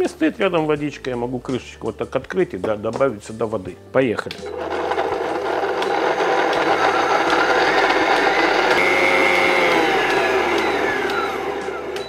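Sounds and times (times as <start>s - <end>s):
blender motor grinding: 4.5s - 12.0s.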